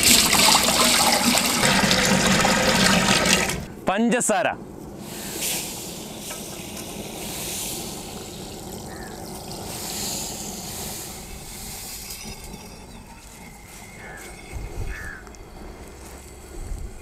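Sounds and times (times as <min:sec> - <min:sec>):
sugar pouring into water: 0:00.0 - 0:03.7, 0:05.9 - 0:14.5.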